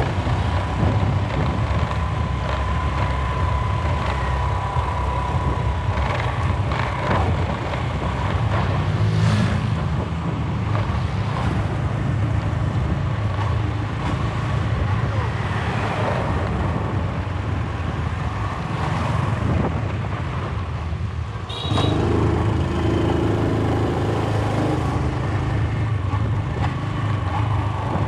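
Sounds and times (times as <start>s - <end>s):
scooter engine: 0.0s - 9.9s
road noise: 0.0s - 28.0s
wind rumbling on microphone: 0.0s - 28.0s.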